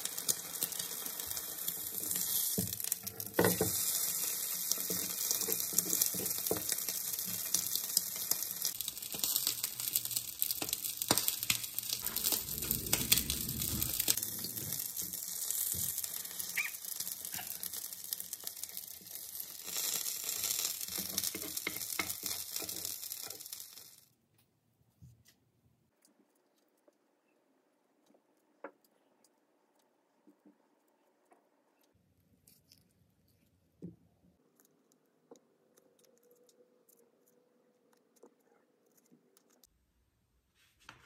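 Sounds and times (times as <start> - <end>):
pancake sizzling in pan: 0.0 - 24.1.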